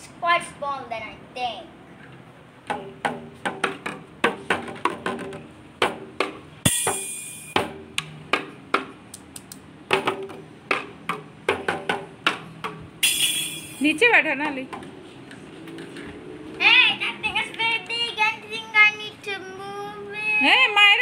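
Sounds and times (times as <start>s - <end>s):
toy drum kit hits: 2.7s - 8.9s, 9.9s - 13.8s
cymbal ringing: 6.6s - 7.6s, 13.0s - 14.0s.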